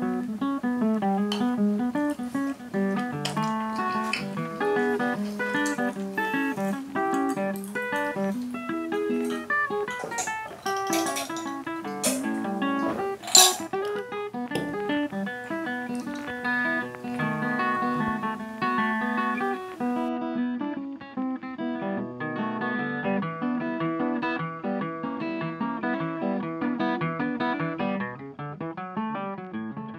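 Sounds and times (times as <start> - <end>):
plucked acoustic guitar: 0.0 - 29.9.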